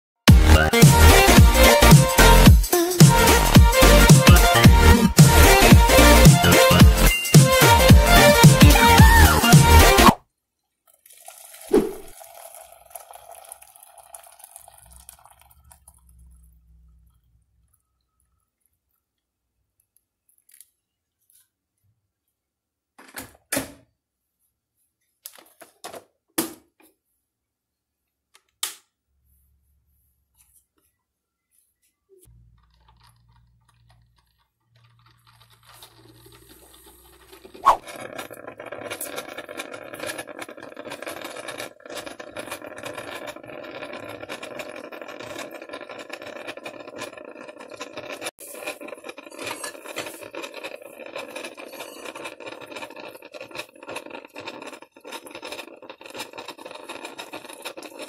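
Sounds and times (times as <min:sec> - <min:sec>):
coffee maker brewing: 0:03.2 - 0:10.2, 0:10.8 - 0:18.5, 0:32.2 - 0:58.0.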